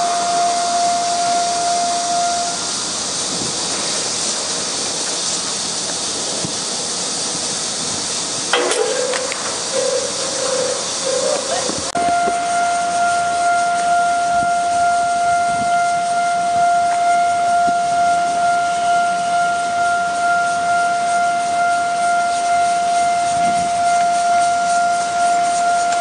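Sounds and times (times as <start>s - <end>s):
steady high tone: 0.0s - 2.9s, 8.6s - 16.2s.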